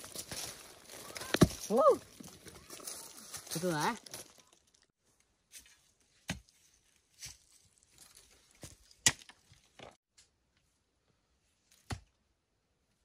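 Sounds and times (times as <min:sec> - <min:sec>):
rustling in dry undergrowth: 0:00.0 - 0:09.7.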